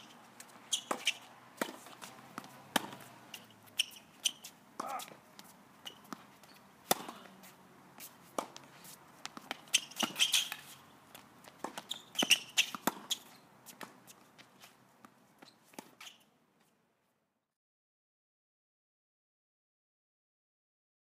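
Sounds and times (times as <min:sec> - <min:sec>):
racket hitting tennis ball: 0:00.0 - 0:16.0
footsteps on hard court: 0:00.2 - 0:15.9
ball bouncing: 0:00.7 - 0:04.0, 0:04.8 - 0:07.3, 0:08.4 - 0:13.2.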